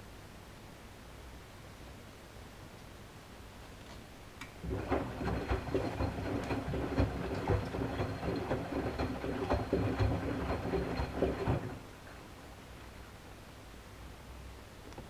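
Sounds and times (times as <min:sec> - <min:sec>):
washing machine motor rumble: 0:04.6 - 0:12.0
laundry and water sloshing in drum: 0:04.6 - 0:12.2.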